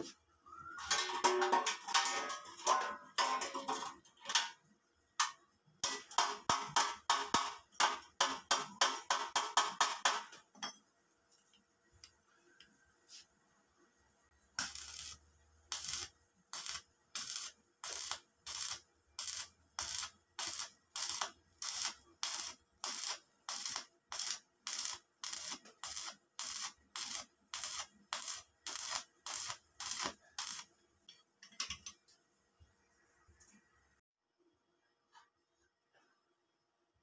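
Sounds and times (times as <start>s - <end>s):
welding arc crackling and hissing: 14.6s - 30.7s.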